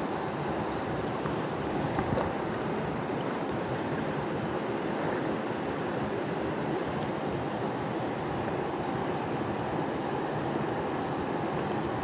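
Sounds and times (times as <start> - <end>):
river rushing: 0.0 - 12.0.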